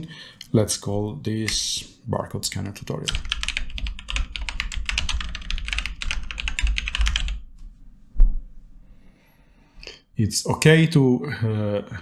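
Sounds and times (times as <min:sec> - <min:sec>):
keyboard typing: 0:03.1 - 0:07.4.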